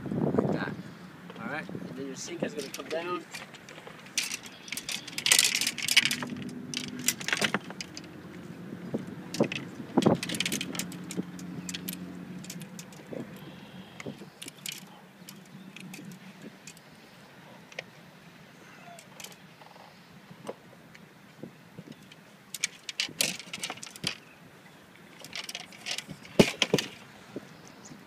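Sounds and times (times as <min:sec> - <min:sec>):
fishing tackle clicks and rattles: 0:02.4 - 0:16.9, 0:19.0 - 0:19.4, 0:21.9 - 0:24.2, 0:25.0 - 0:27.0.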